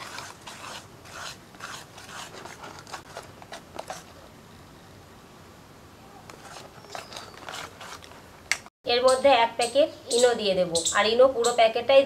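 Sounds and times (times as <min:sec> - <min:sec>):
whisk scraping batter in bowl: 0:00.0 - 0:04.1, 0:06.3 - 0:08.1.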